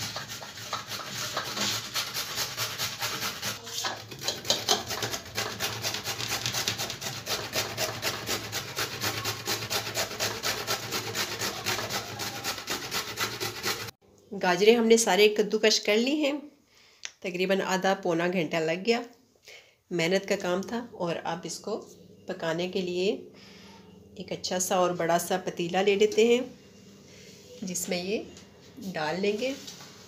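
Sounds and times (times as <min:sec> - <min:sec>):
carrots scraping on grater: 0:00.0 - 0:13.9.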